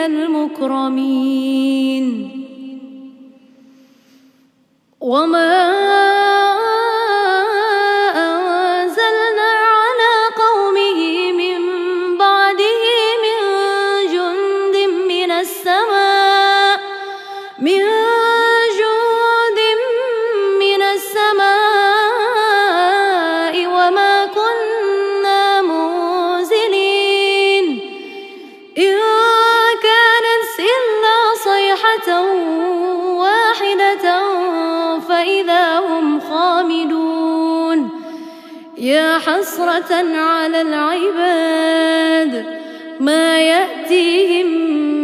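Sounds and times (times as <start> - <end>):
woman reciting melodically: 0.0 - 3.3, 5.0 - 45.0
woman breathing: 3.5 - 4.8, 17.0 - 17.6, 38.0 - 38.8.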